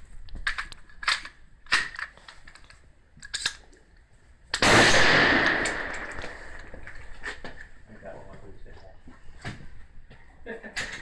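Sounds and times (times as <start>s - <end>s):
loud rifle shot: 4.6s - 6.6s.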